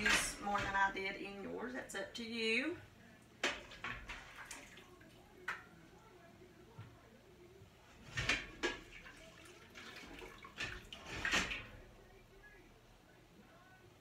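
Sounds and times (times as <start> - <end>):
utensil scraping metal pot: 0.0 - 1.4, 7.9 - 11.9
water sloshing: 3.4 - 5.6, 8.0 - 12.1.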